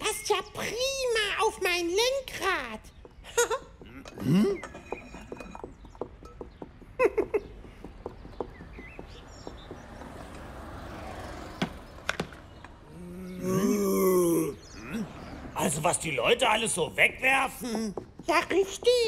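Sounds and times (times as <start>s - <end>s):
wordless vocal grunts: 12.9s - 15.2s.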